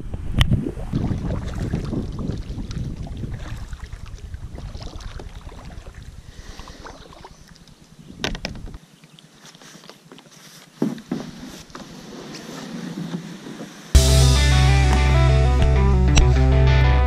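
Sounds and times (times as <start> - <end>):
water and hull noises: 0.1 - 14.0.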